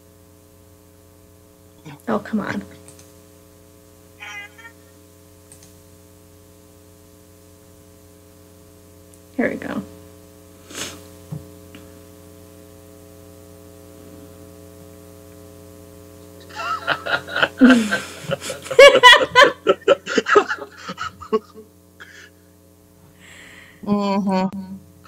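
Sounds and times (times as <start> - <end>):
electrical mains hum: 0.0 - 25.0
laughter in short bursts: 4.2 - 4.8, 16.4 - 22.3.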